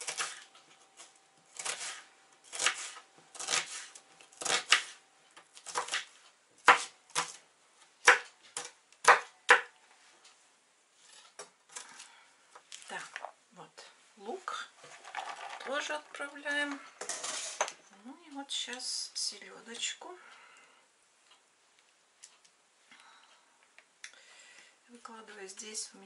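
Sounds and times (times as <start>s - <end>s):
knife chopping on plastic board: 5.6s - 7.4s, 8.0s - 9.7s.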